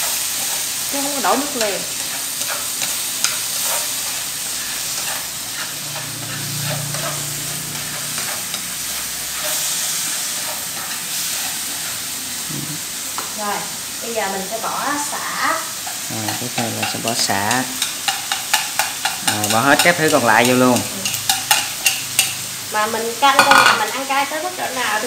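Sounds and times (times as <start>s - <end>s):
food sizzling in a frying pan: 0.0s - 25.0s
chopsticks clicking against pan: 15.8s - 22.4s.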